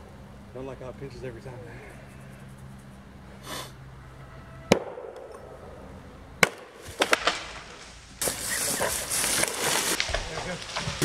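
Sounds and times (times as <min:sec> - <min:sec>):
axe chopping tree trunk: 0:04.7 - 0:05.3, 0:06.4 - 0:07.5.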